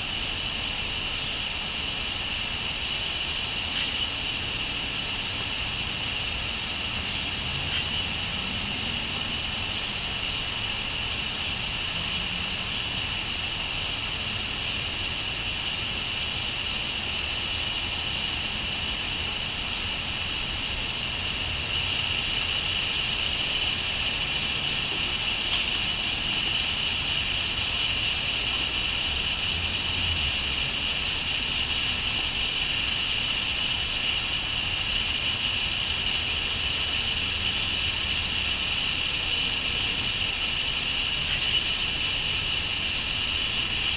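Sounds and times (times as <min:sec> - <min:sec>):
constant high hiss: 0:00.0 - 0:43.9
small bird chirping: 0:03.7 - 0:04.2, 0:07.1 - 0:08.2, 0:28.0 - 0:28.4, 0:39.7 - 0:41.8.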